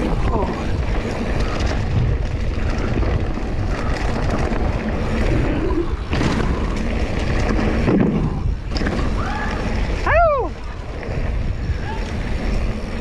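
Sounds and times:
bike tyres rumbling on dirt: 0.0 - 13.0
wind buffeting microphone: 0.0 - 13.0
bike knocking on wooden planks: 6.0 - 9.4.

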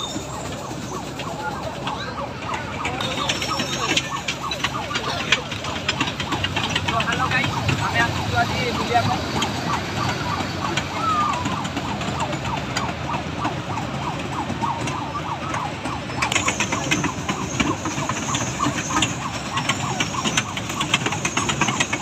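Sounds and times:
crowd voices: 0.0 - 22.0
ride machinery: 0.0 - 22.0
train ride clatter: 0.0 - 22.0
wavering siren-like tones: 0.0 - 22.0.

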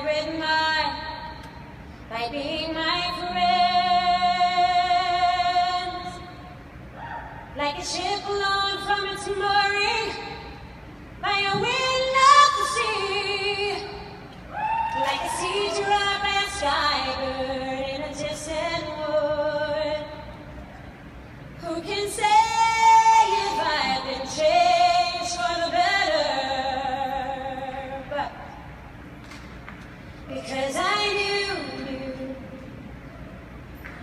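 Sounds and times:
woman singing into microphone: 2.1 - 6.3, 11.2 - 14.2, 14.8 - 20.3, 21.6 - 28.5, 30.3 - 32.8.

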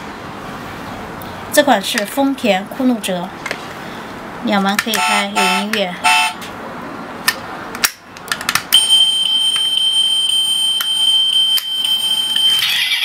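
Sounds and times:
high electronic beep tone: 8.8 - 13.0.

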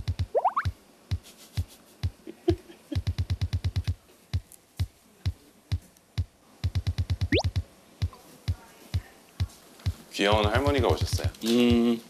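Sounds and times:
electronic drum-machine beat: 0.0 - 2.2, 3.0 - 4.0, 6.7 - 7.7, 9.9 - 11.4
drum rolls: 9.9 - 11.8.

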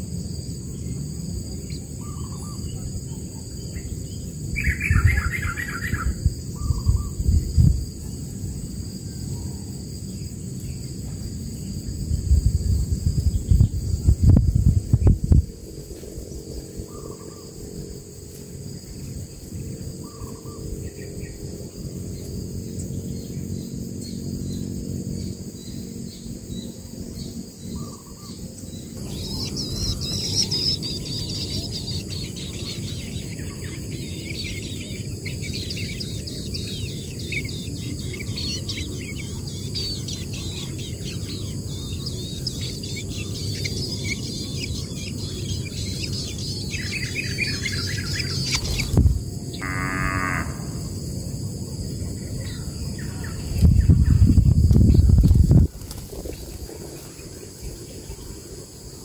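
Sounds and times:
high insect drone: 0.0 - 59.0
nestlings chirping rapidly: 27.8 - 49.0.

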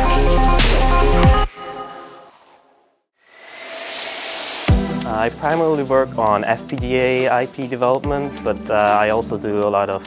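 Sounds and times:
electronic music with deep bass: 0.0 - 1.5, 4.7 - 9.3
swept drum hits: 4.3 - 5.1.

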